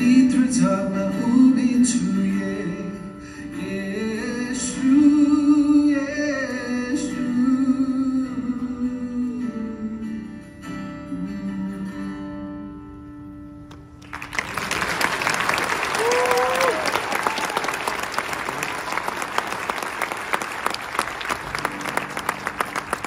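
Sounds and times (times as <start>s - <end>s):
man singing: 0.0s - 12.3s
acoustic guitar: 0.0s - 15.0s, 17.9s - 23.0s
audience applause: 14.0s - 23.0s.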